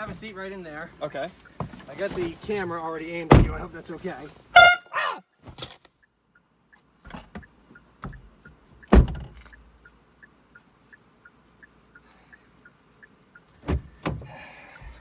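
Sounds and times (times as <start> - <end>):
knocks and thumps in car cabin: 1.6 - 3.8, 7.1 - 9.4, 13.6 - 15.0.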